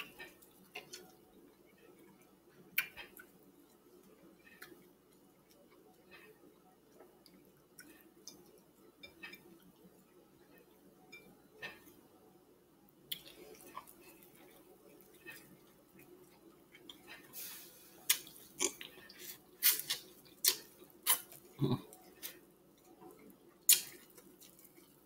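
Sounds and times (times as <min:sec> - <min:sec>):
person chewing: 0:13.1 - 0:16.1, 0:18.0 - 0:22.4, 0:23.7 - 0:25.0.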